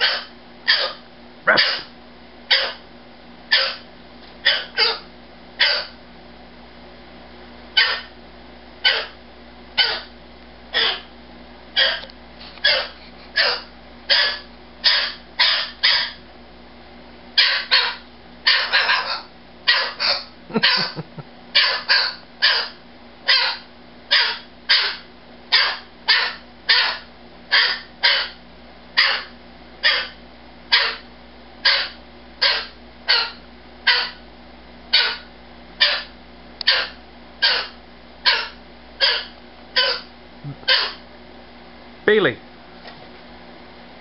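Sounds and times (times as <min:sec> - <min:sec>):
cockatoo screeching: 0:00.0 - 0:01.9, 0:02.5 - 0:02.8, 0:03.5 - 0:03.8, 0:04.4 - 0:06.0, 0:07.8 - 0:08.1, 0:08.8 - 0:09.2, 0:09.8 - 0:10.1, 0:10.7 - 0:11.1, 0:11.8 - 0:16.2, 0:17.4 - 0:21.0, 0:21.6 - 0:28.4, 0:29.0 - 0:31.0, 0:31.6 - 0:34.2, 0:34.9 - 0:40.1, 0:40.7 - 0:41.0.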